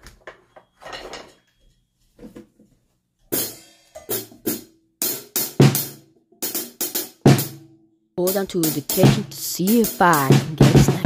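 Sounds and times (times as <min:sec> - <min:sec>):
drum kit playing: 0:03.4 - 0:07.6, 0:08.2 - 0:11.0.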